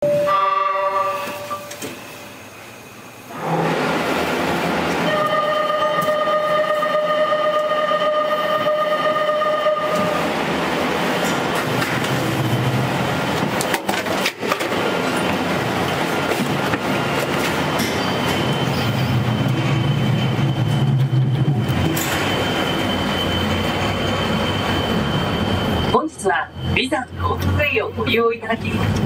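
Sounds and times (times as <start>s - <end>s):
steady pitched warning tone: 5.0s - 10.3s, 17.6s - 28.8s
gondola machinery rattling rush: 7.9s - 29.0s.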